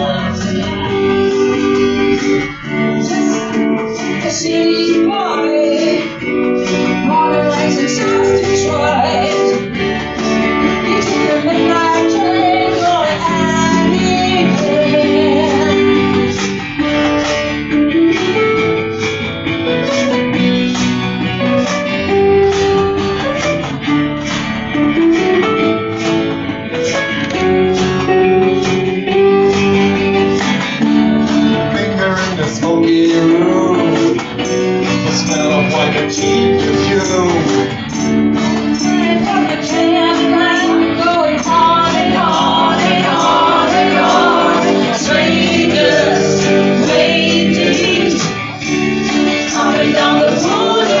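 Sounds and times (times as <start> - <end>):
several voices singing: 0.0 - 16.6, 38.4 - 51.0
strummed acoustic guitars: 0.0 - 51.0.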